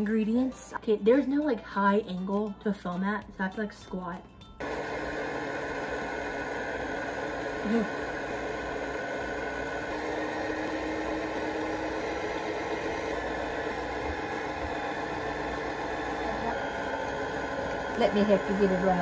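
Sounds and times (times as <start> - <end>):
mixer clunk: 4.6 - 18.9
stand mixer motor whining: 4.6 - 19.0.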